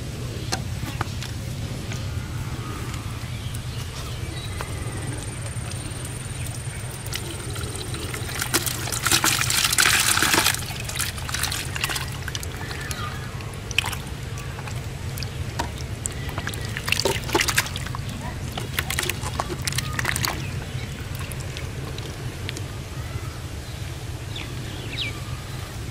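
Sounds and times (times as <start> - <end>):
water drips and splashes: 4.6 - 23.2
water pouring into plastic bucket: 5.7 - 22.5.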